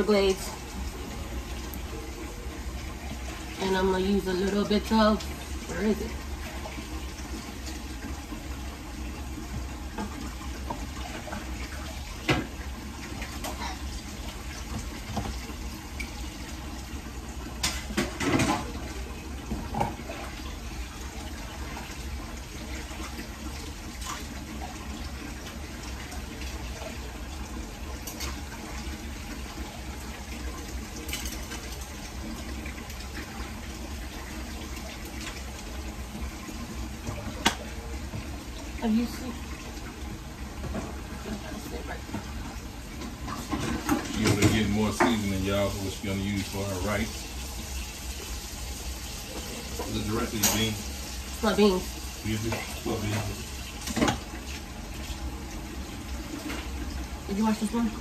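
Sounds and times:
beans boiling in saucepan: 0.0 - 58.0
kitchen utensils clinking: 49.8 - 50.8.

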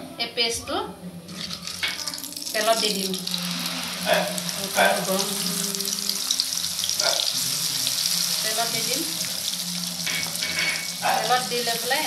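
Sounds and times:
paste sizzling in hot oil: 1.3 - 12.0.

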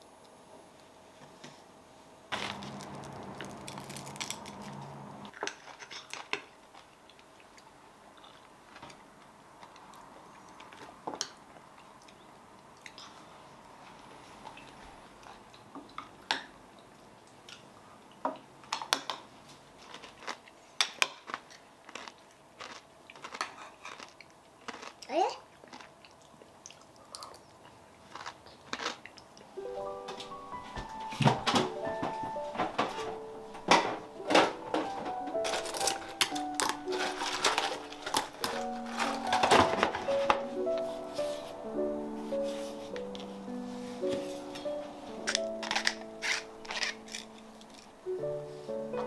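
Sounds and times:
soft chewing: 5.3 - 18.5, 19.4 - 29.6.

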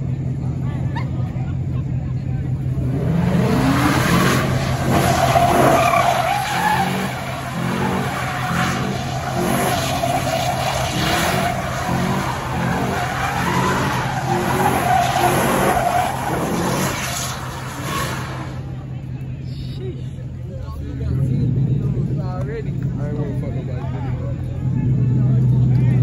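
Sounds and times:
truck engine revving: 1.6 - 19.0
tyres squealing: 3.6 - 18.7.

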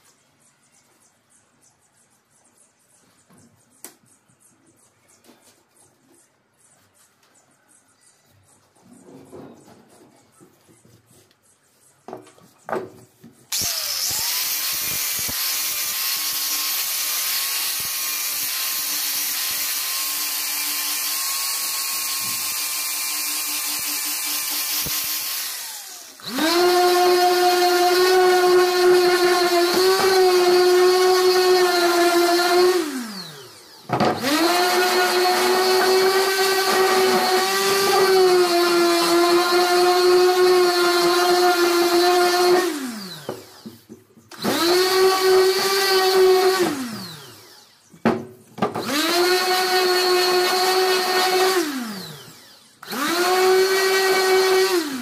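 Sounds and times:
angle grinder sanding wood: 13.2 - 47.8, 48.7 - 55.0
power tool whine: 13.5 - 55.0.

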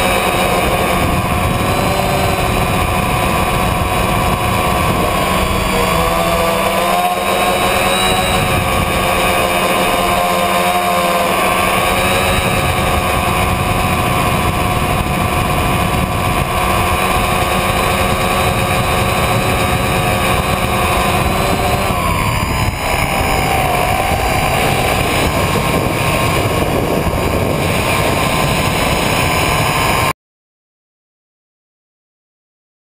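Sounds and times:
drone motors and propellers whining: 0.0 - 30.1.

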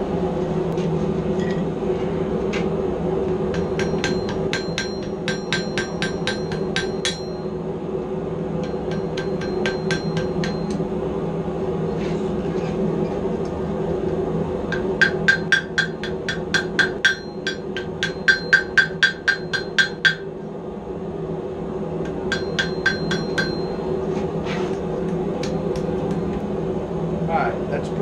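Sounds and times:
low hum: 0.0 - 27.9
hammer striking steel on anvil: 3.4 - 7.5, 8.6 - 10.8, 14.7 - 20.3, 22.1 - 23.8.

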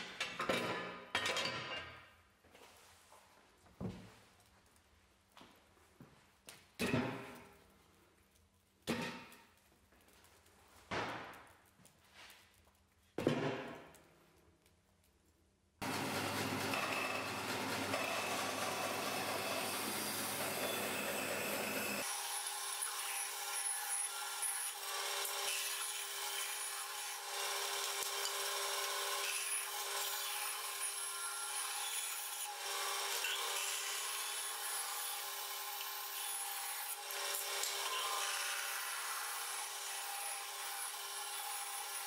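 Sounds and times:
bandsaw motor hum and blade whine: 15.8 - 42.0
saw rasping through wood: 15.8 - 42.0.

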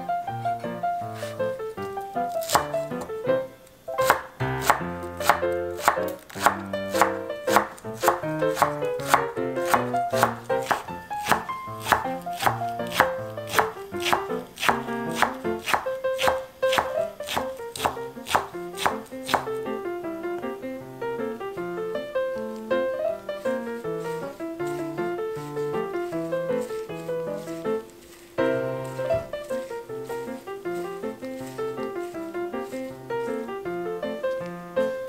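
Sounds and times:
background piano music: 0.0 - 35.0
knife chopping on cutting board: 2.3 - 3.2, 4.0 - 19.6, 23.4 - 27.8, 28.8 - 33.5.

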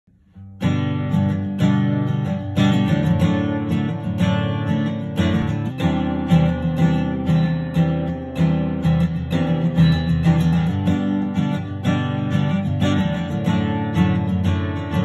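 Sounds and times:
acoustic guitar strumming: 0.2 - 15.0.

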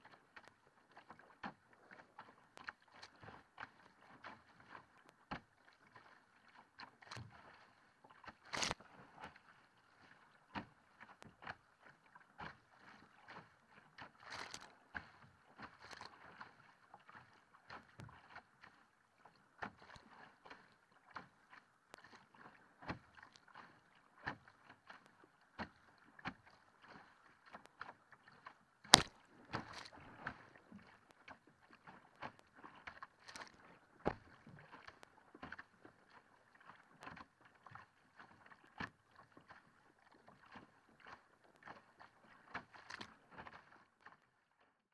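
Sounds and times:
water slapping against hull: 0.1 - 44.4.

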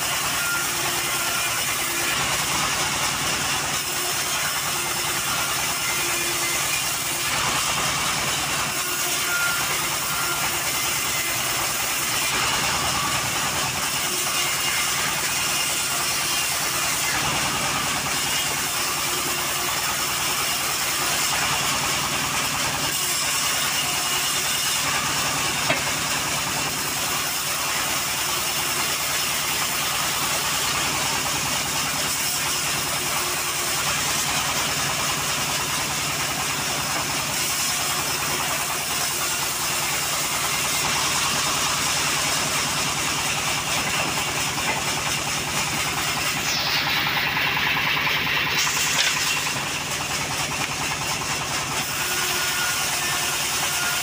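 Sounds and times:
band sawmill running: 0.0 - 54.0
saw blade hissing in wood: 33.4 - 53.6.

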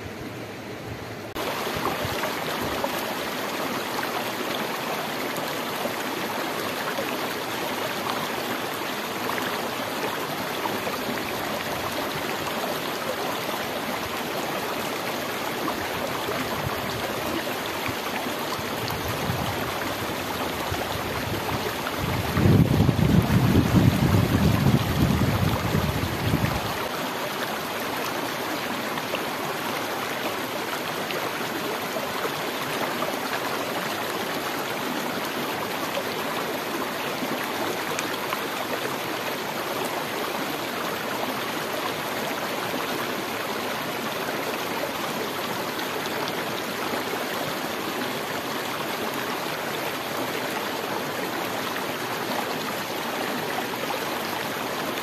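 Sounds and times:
stream flowing: 0.0 - 55.0
wind buffeting microphone: 20.6 - 26.7.

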